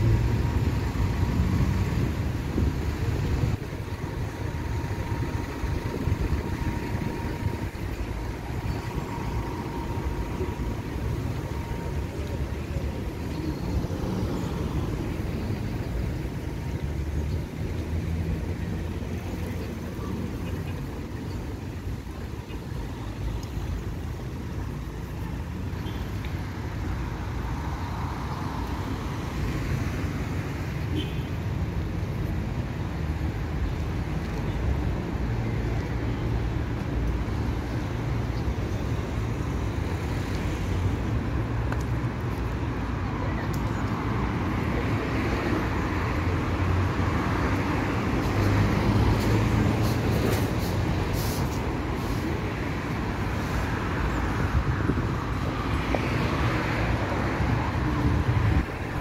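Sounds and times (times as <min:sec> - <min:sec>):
nearby engine hum: 0:00.0 - 0:24.8
street traffic rumble: 0:00.0 - 0:59.0.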